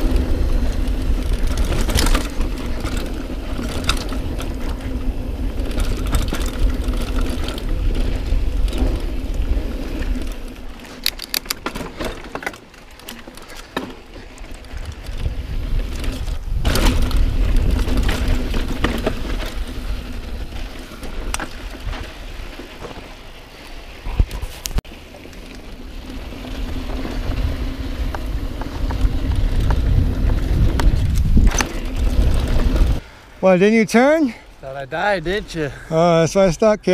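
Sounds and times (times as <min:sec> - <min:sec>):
wind rush on microphone: 0:00.0 - 0:10.8, 0:14.6 - 0:22.5, 0:24.0 - 0:24.8, 0:26.0 - 0:33.1
bike tyre and drivetrain noise: 0:00.0 - 0:36.9.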